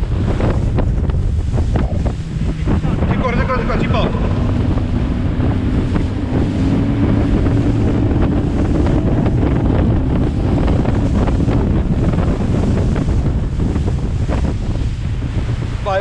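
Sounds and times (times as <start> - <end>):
open water around boat: 0.0 - 16.0
wind buffeting microphone: 0.0 - 16.0.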